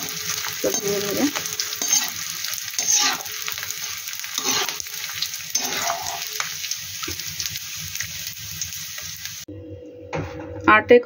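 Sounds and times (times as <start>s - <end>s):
spatula stirring and scraping: 0.0s - 7.6s
gum crackling and sizzling in oil: 0.0s - 9.5s.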